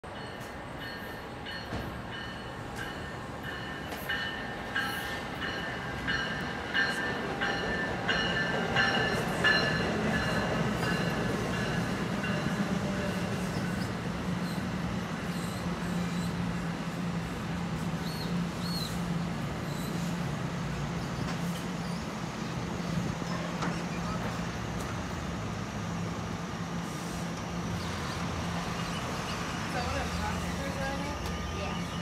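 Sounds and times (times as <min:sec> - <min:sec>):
train low hum: 0:00.0 - 0:32.0
locomotive bell ringing: 0:00.1 - 0:13.9.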